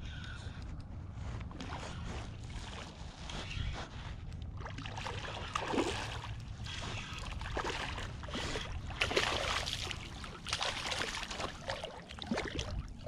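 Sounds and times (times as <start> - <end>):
fish splashing in water: 4.6 - 13.0.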